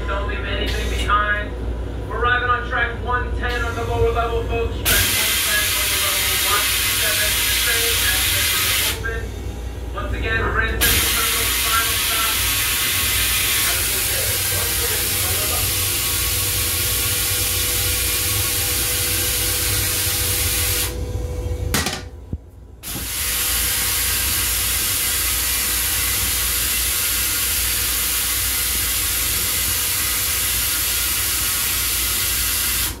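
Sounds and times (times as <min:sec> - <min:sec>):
toilet flush spray hissing: 0:04.9 - 0:09.0, 0:10.8 - 0:21.0, 0:22.8 - 0:33.0.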